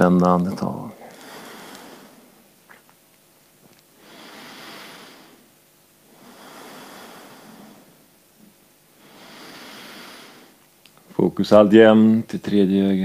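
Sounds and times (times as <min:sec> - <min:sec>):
person breathing slowly: 0:01.0 - 0:02.4, 0:04.0 - 0:08.0, 0:09.0 - 0:10.6.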